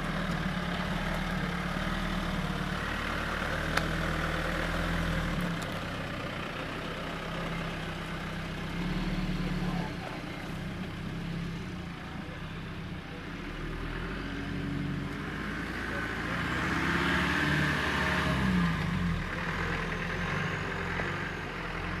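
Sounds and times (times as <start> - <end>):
vehicle engine revving: 7.3 - 22.0.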